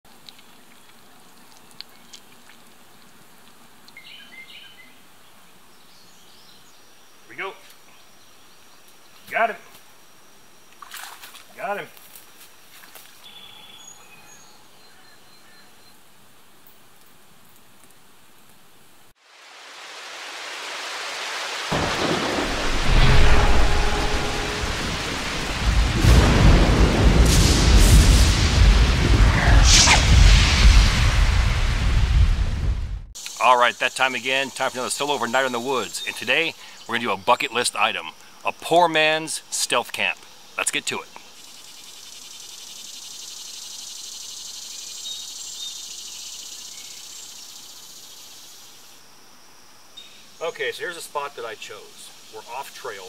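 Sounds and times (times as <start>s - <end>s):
outdoor ambience: 0.0s - 53.0s
bird chirping: 3.9s - 9.4s, 13.2s - 16.0s, 33.2s - 38.1s, 40.4s - 49.0s
rain hiss: 16.2s - 53.0s
rolling thunder: 21.7s - 33.2s.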